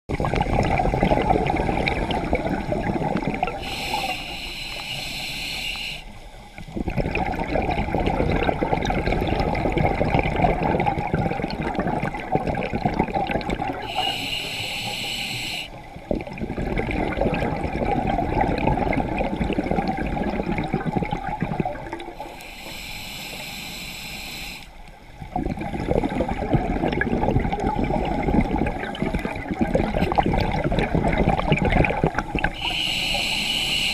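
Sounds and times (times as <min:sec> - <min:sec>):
bubbling exhales: 0:00.1 - 0:06.0, 0:06.6 - 0:23.4, 0:25.2 - 0:33.9
regulator hissing inhales: 0:03.6 - 0:06.5, 0:13.8 - 0:15.8, 0:22.2 - 0:24.8, 0:32.6 - 0:33.9.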